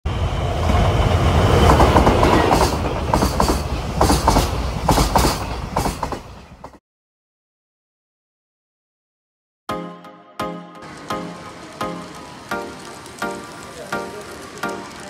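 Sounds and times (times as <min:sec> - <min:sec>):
model train rumbling: 0:00.1 - 0:06.8, 0:10.8 - 0:15.0
wheels clicking over rail joints: 0:01.4 - 0:06.8, 0:10.8 - 0:15.0.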